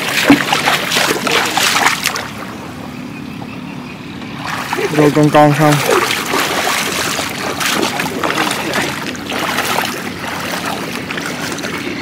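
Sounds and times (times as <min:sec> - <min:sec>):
floodwater sloshing and splashing: 0:00.0 - 0:03.5, 0:04.3 - 0:12.0.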